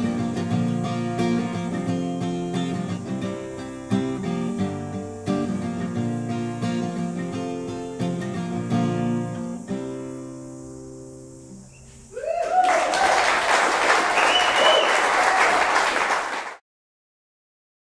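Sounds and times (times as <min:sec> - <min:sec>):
acoustic guitar chord ringing: 0:00.0 - 0:11.7
applause and cheering: 0:12.2 - 0:16.6.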